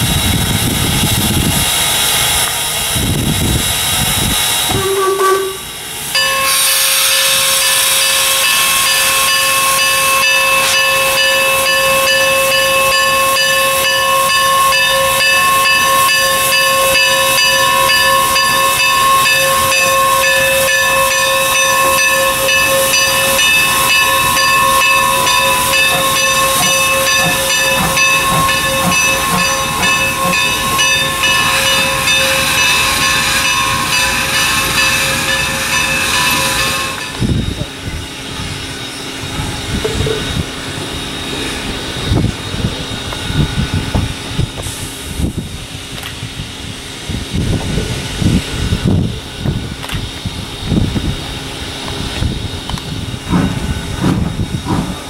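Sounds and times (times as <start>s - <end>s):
steam locomotive hissing steam: 0.0s - 55.0s
low thumps of locomotive: 10.8s - 38.5s, 47.4s - 55.0s.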